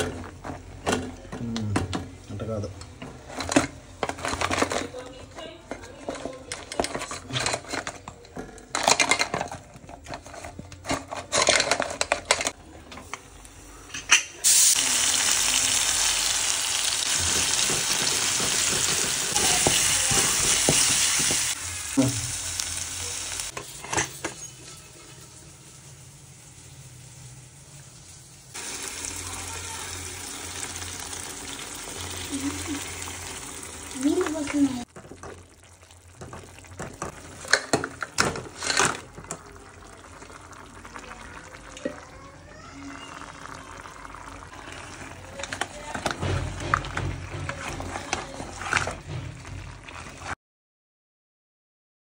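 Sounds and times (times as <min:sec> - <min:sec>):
frying sizzle: 0:13.1 - 0:47.3
spoon scraping in a pot: 0:44.5 - 0:50.3.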